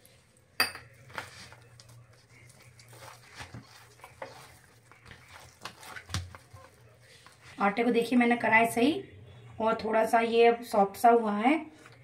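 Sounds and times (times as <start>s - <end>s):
hands kneading dough: 0.0s - 8.0s.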